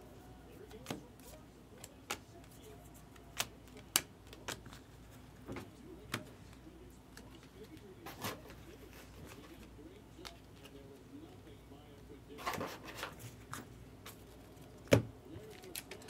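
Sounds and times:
trading cards clicking and tapping: 0.6s - 4.9s, 13.5s - 16.0s.

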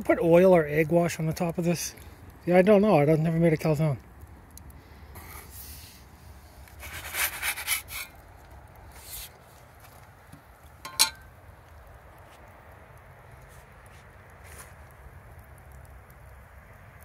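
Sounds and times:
scraping and rubbing: 6.7s - 8.2s
sharp metallic clink: 10.9s - 11.2s.

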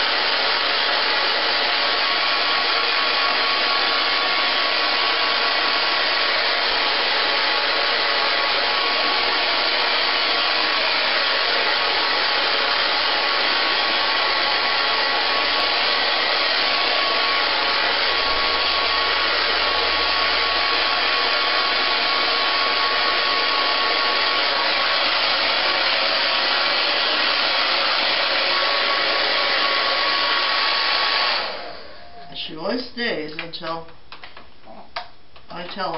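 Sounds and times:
hair dryer blowing: 0.0s - 32.8s
faint steady whine: 31.8s - 32.6s.

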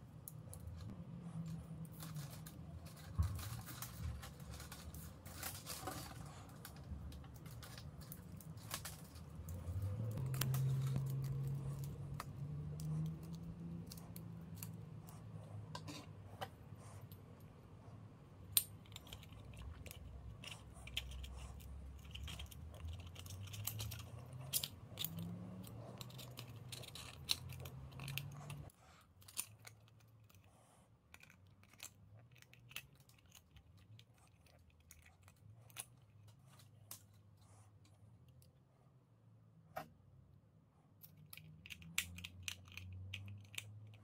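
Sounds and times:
small metal parts clicking: 21.9s - 30.3s, 41.0s - 44.0s.

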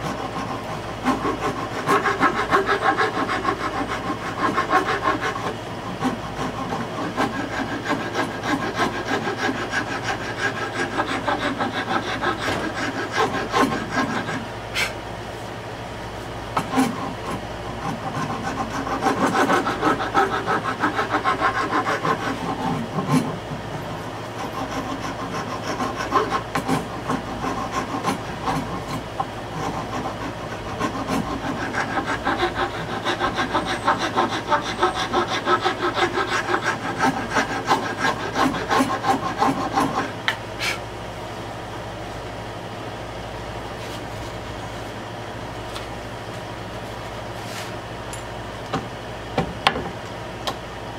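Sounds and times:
file rasping on wood: 0.0s - 15.0s, 16.6s - 40.8s.

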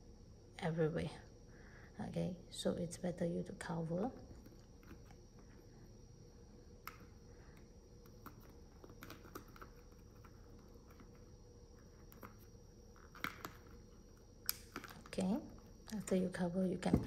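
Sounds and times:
fingers clicking and tapping plastic cup: 14.4s - 15.2s.

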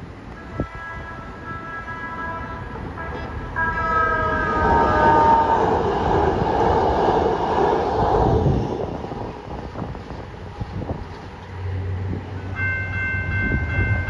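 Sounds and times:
train horn: 0.3s - 5.9s
train wheels rumbling on rails: 2.4s - 14.0s.

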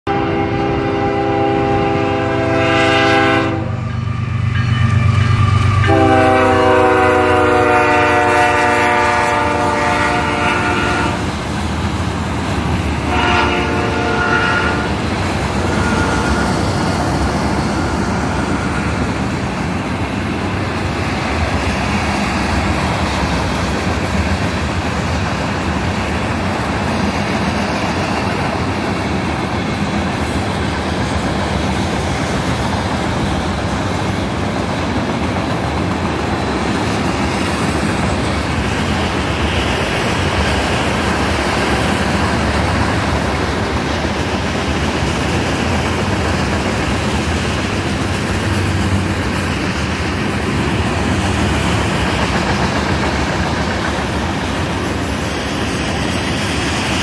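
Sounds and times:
locomotive horn blasts: 0.1s - 11.3s, 13.0s - 15.0s, 15.6s - 16.8s
train wheel clatter: 3.8s - 57.0s.

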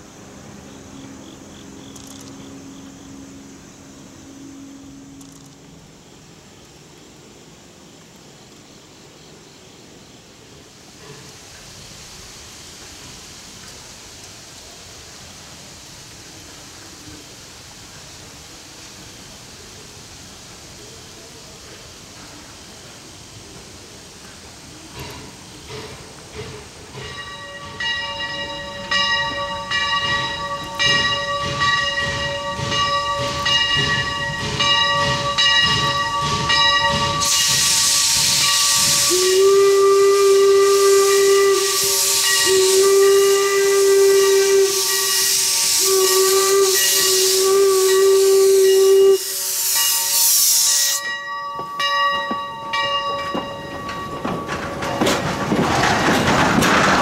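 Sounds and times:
steam hissing: 9.0s - 51.9s
locomotive bell ringing: 27.0s - 37.7s, 38.4s - 38.9s, 42.1s - 42.8s, 44.2s - 45.6s, 46.7s - 55.9s
steam whistle blasts: 34.6s - 51.2s
coaches rolling past: 51.5s - 57.0s.

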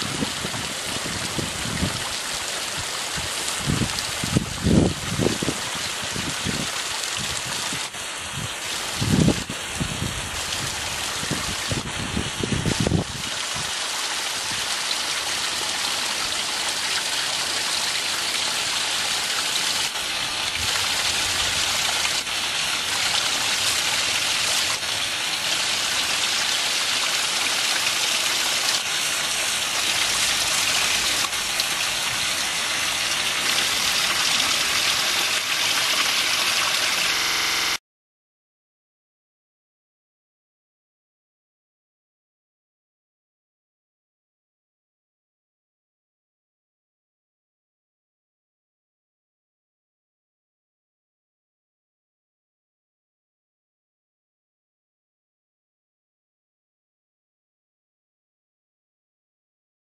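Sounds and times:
water dripping and trickling: 0.0s - 37.1s.

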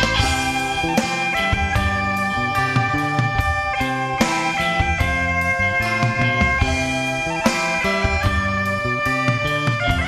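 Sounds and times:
drum beat: 0.0s - 10.0s
rock guitar: 0.0s - 10.0s.

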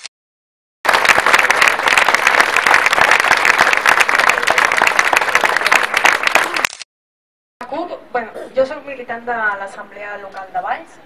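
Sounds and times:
crowd applauding: 0.8s - 6.7s.

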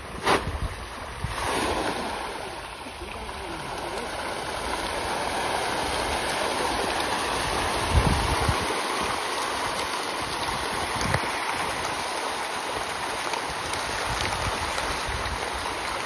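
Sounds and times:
fish splashing at surface: 0.1s - 12.0s.

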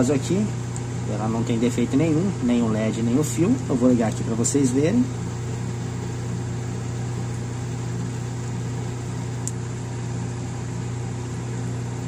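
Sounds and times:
refrigeration unit humming: 0.0s - 12.0s.

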